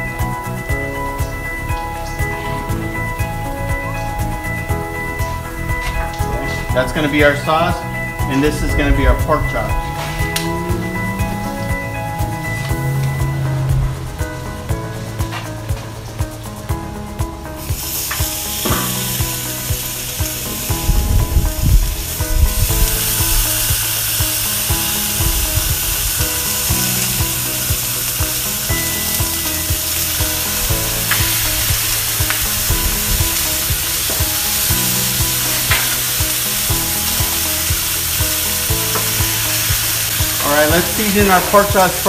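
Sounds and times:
background music: 0:00.0 - 0:42.0
meat sizzling on a griddle: 0:17.6 - 0:42.0.

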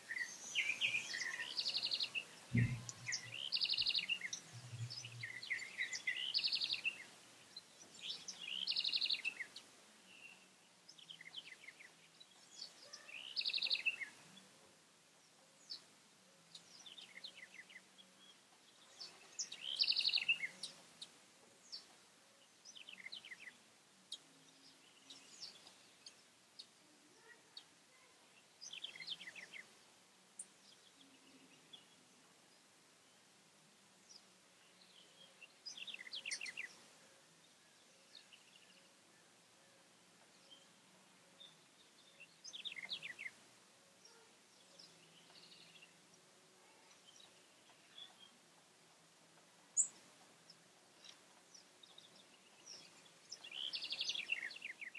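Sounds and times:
bird chirps: 0:00.0 - 0:14.3, 0:16.5 - 0:21.9, 0:34.1 - 0:36.8, 0:41.4 - 0:43.4, 0:51.0 - 0:54.9.

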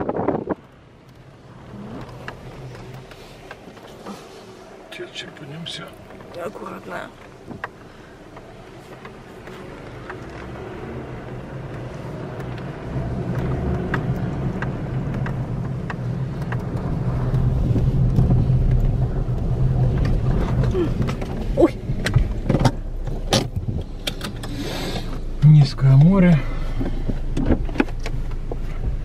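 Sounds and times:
car clicks and rattles: 0:00.0 - 0:06.4, 0:07.1 - 0:29.0
car engine running: 0:00.0 - 0:29.0
knocks and rattles over bumps: 0:07.1 - 0:29.0.

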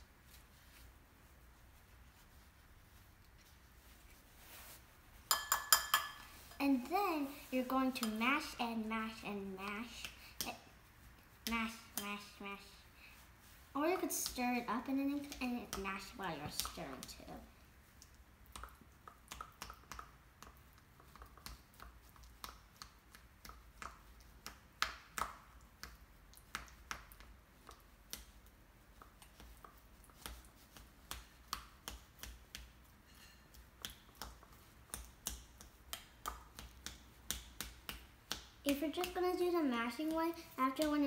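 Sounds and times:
spoon tapping bowl: 0:05.3 - 0:06.3.

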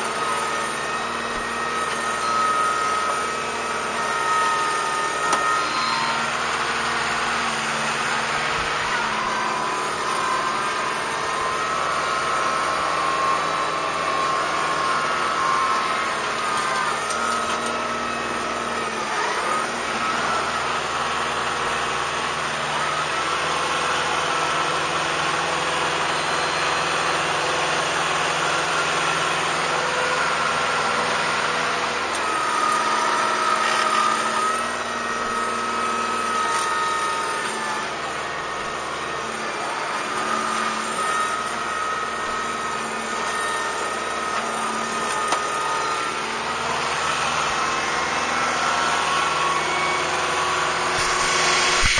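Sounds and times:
tractor diesel engine running: 0:00.0 - 0:51.9
steady high whine: 0:45.0 - 0:51.9.

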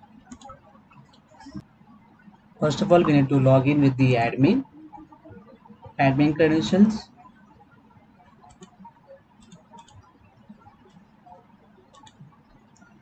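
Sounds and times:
computer keyboard keys clicking: 0:00.3 - 0:01.4, 0:08.4 - 0:08.8, 0:09.4 - 0:10.1, 0:11.9 - 0:13.0.

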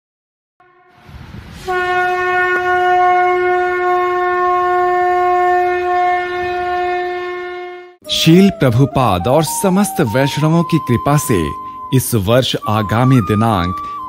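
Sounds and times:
conch shell blown: 0:00.6 - 0:08.5.

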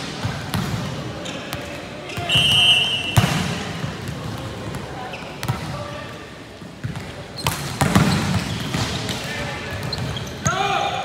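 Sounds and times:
steady background noise: 0:00.0 - 0:11.0
volleyball thuds: 0:03.2 - 0:04.4.

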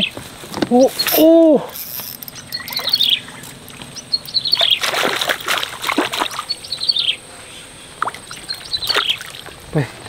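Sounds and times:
fish splashing in water: 0:02.6 - 0:06.9, 0:08.0 - 0:09.6.

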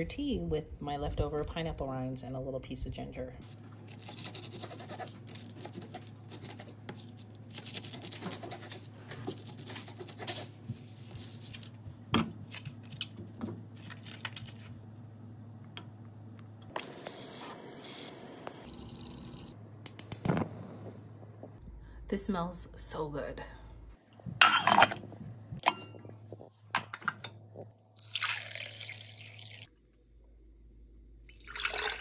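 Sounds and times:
knife cutting through rind: 0:03.9 - 0:06.7
low hum: 0:18.4 - 0:28.0.

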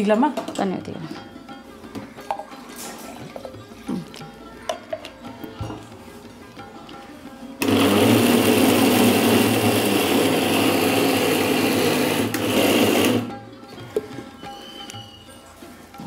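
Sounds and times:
electric mixer grinder running: 0:07.6 - 0:13.3.

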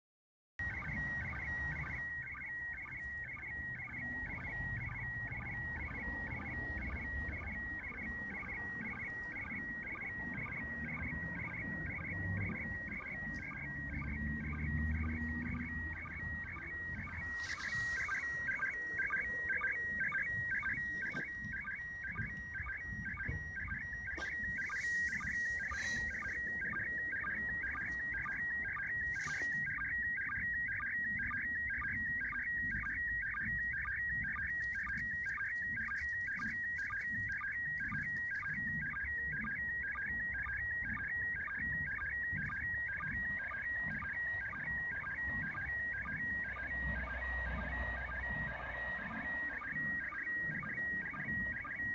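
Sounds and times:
shrill warbling radio tone: 0:00.7 - 0:30.4
radio noise hiss and rumble: 0:05.9 - 0:30.1.

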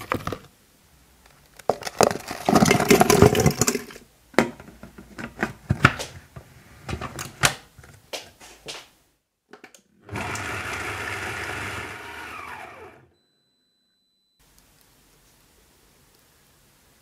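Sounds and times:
food processor blade chopping: 0:10.0 - 0:13.0.

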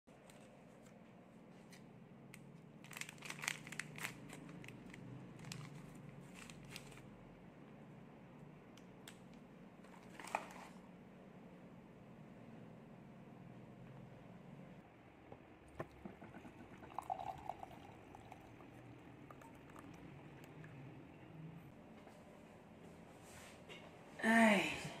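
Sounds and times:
paper sachet crinkling and tearing: 0:02.8 - 0:07.1.

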